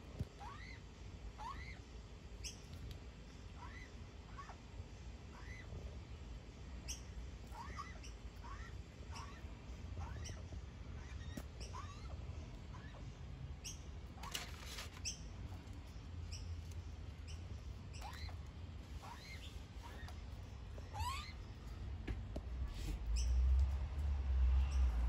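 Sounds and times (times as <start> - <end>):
brief rustle: 14.2 - 15.1.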